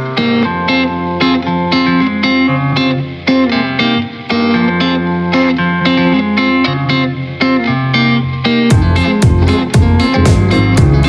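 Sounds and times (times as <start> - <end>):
guitar picking notes: 0.0 - 11.0
bass line: 8.7 - 11.0.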